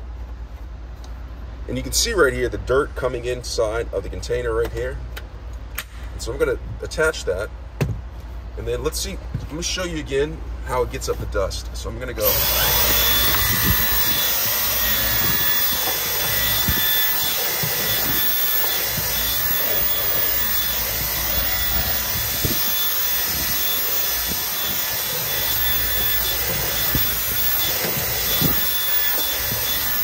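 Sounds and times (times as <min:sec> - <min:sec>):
cordless vacuum running: 0:12.2 - 0:30.0.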